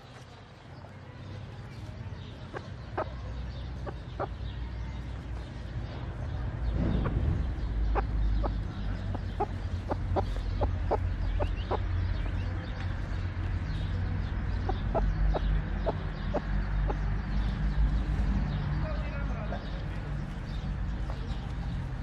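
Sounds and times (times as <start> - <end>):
hen clucking: 2.3 - 5.1, 6.9 - 13.0, 13.9 - 17.6.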